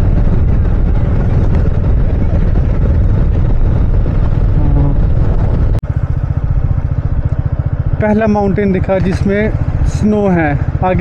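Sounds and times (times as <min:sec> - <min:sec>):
wind on microphone: 0:00.0 - 0:07.6
motorcycle engine running: 0:00.0 - 0:11.0
road rumble: 0:00.0 - 0:11.0.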